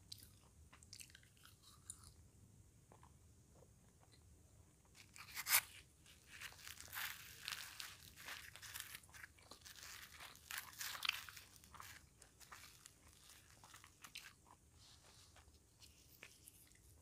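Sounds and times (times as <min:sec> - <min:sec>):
fried bread crunching: 0:04.9 - 0:15.5.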